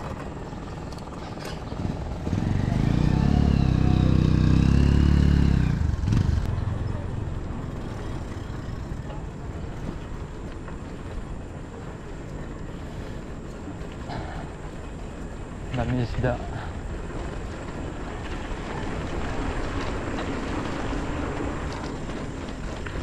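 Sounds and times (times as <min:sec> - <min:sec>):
wind and road noise: 0:00.0 - 0:23.0
vehicle engine passing: 0:01.3 - 0:09.6.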